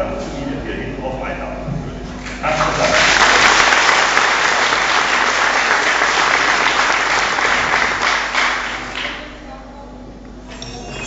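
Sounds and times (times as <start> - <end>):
audience clapping: 2.2 - 9.3.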